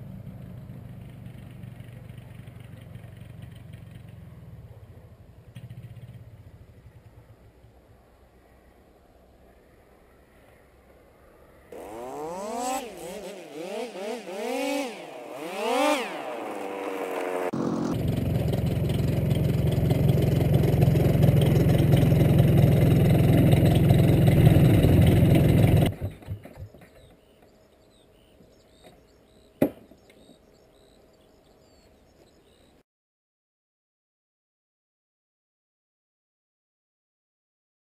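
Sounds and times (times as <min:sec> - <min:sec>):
engine sputtering: 0:00.0 - 0:07.8, 0:11.8 - 0:27.2
propeller buffeting: 0:00.0 - 0:08.3, 0:11.8 - 0:26.4
paraglider engine revving: 0:11.7 - 0:26.4.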